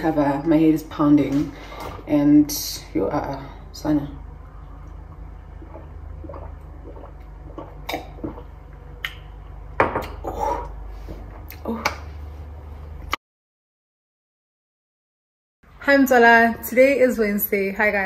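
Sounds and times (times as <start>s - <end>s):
steady low hum: 0.0s - 13.2s
person sipping and swallowing: 5.5s - 9.2s, 10.0s - 10.9s.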